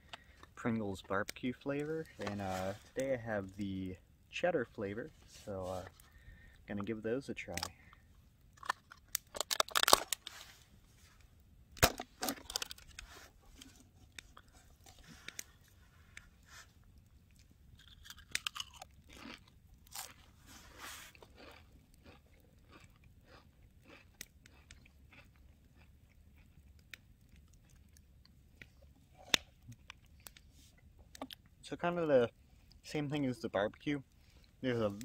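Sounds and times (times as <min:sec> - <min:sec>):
potato chips crunching: 0:08.6 - 0:10.4, 0:11.9 - 0:13.0, 0:17.3 - 0:28.0
chewing clicks: 0:16.9 - 0:20.2, 0:21.2 - 0:30.4.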